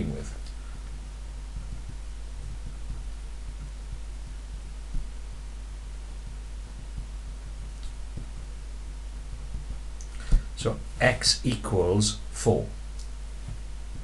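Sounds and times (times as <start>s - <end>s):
low electrical hum: 0.0s - 14.0s
faint soft taps: 0.4s - 5.4s, 9.2s - 10.5s, 13.0s - 14.0s.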